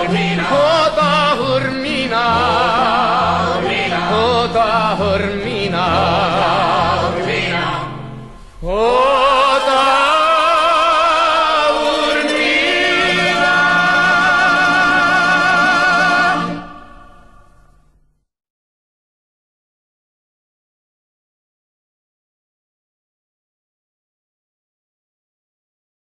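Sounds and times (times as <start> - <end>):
person singing with vibrato: 0.0 - 17.6.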